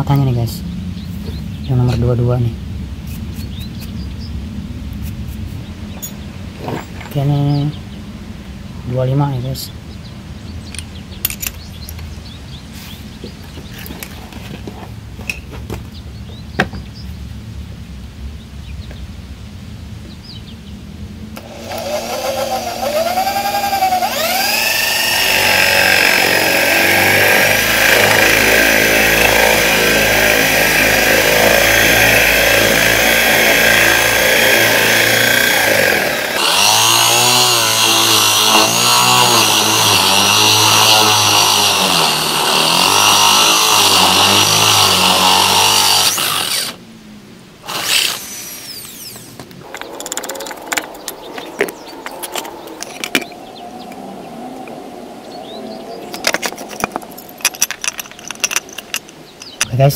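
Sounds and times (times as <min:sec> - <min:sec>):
electric drill boring into wood: 0:21.4 - 0:46.8, 0:47.6 - 0:53.2.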